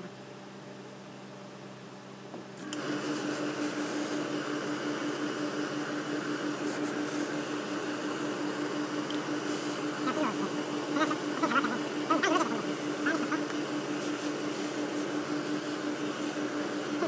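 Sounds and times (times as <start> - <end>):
steam iron hissing: 2.7 - 4.5, 6.5 - 8.0, 9.3 - 13.0, 13.6 - 17.0.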